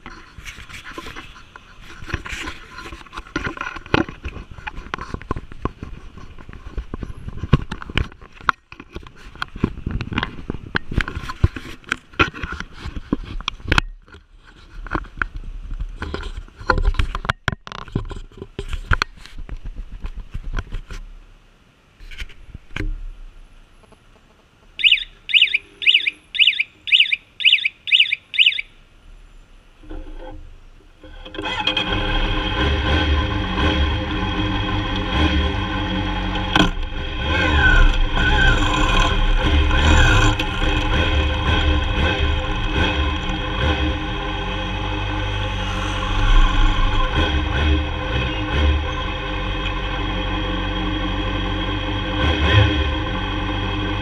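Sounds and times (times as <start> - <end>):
short high electronic beeps: 24.8 - 28.7.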